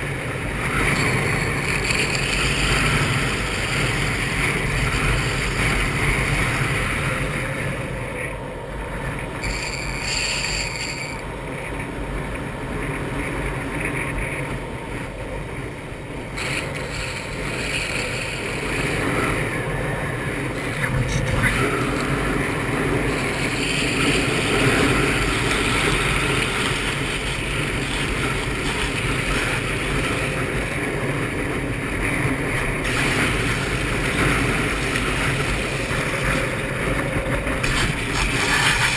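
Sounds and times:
longboard wheels rolling on asphalt: 0.0 - 38.9
wind on microphone: 11.0 - 38.9.

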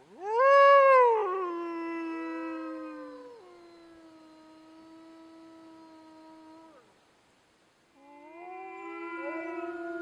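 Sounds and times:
wolves howling: 0.2 - 4.2, 8.1 - 10.0.

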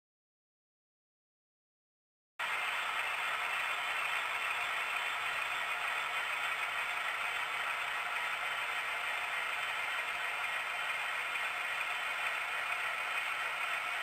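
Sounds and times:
model train rattling on rails: 2.4 - 14.0.

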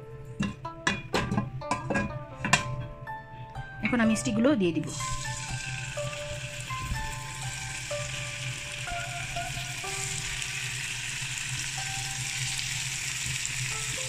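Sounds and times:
background music tune: 0.0 - 14.0
meat sizzling in oil: 4.9 - 14.0.

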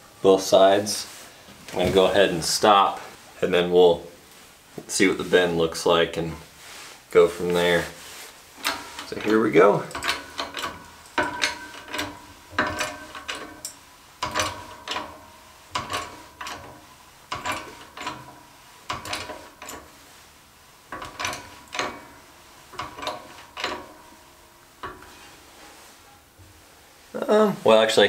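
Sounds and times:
press clicking and creaking: 8.6 - 20.0, 20.9 - 25.4.

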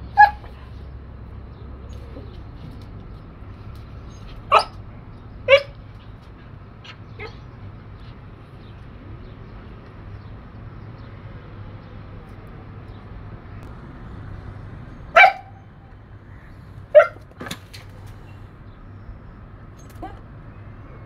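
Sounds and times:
dog barking: 0.1 - 0.6, 4.4 - 4.8, 5.5 - 5.8, 15.1 - 15.6, 16.9 - 17.2
steady low hum: 12.5 - 17.3.

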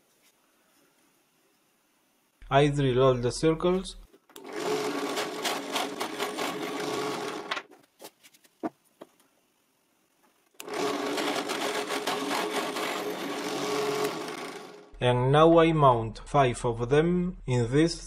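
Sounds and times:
drill press running: 4.3 - 7.6, 10.6 - 15.0.

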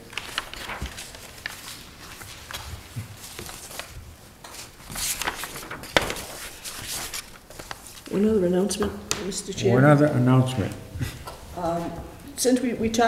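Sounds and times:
paper rustling: 0.0 - 8.2
paper taps and knocks on table: 5.2 - 6.4.

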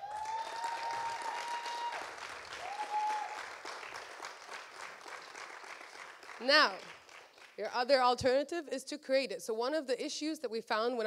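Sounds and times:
high-pitched held cheers: 0.0 - 3.8
audience applauding: 0.0 - 7.6.

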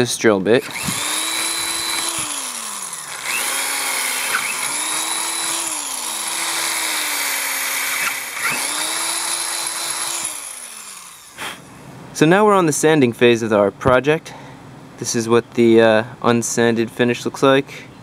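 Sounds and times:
electric drill boring through steel: 0.6 - 11.5.

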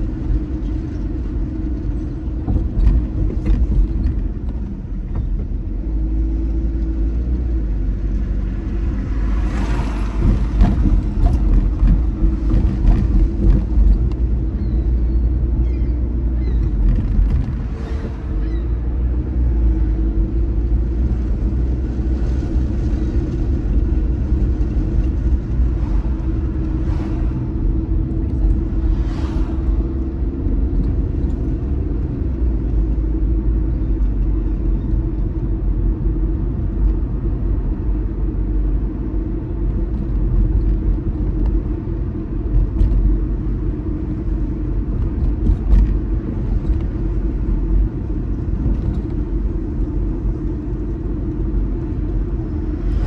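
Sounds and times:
car engine and tyre rumble: 0.0 - 53.0
passing swishes: 28.8 - 30.0.

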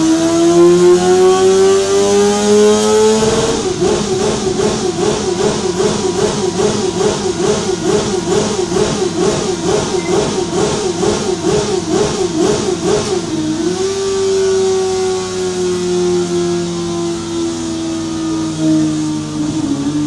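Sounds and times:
motorcycle engine revving high: 0.0 - 20.0.

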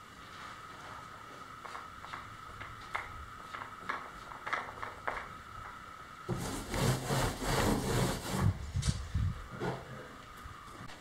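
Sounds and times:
paint roller rubbing: 6.3 - 8.7.

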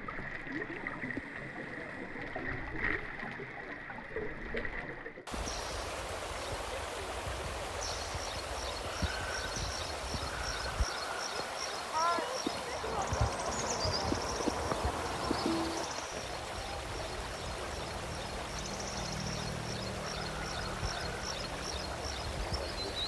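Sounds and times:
water rushing over rocks: 5.3 - 23.0
muffled underwater gurgling: 8.8 - 17.4.

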